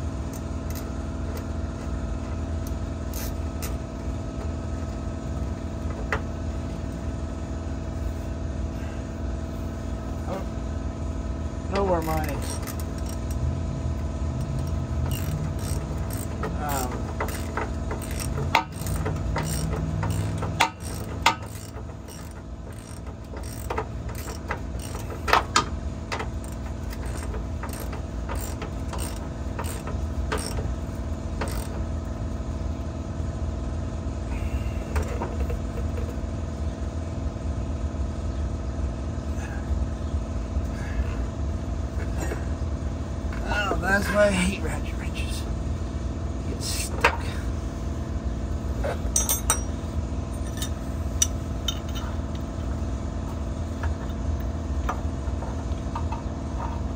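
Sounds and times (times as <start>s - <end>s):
steady hum with held tones: 0.0s - 56.9s
ratchet wrench clicking: 2.6s - 3.8s, 12.0s - 13.4s, 14.4s - 30.7s, 31.4s - 31.8s.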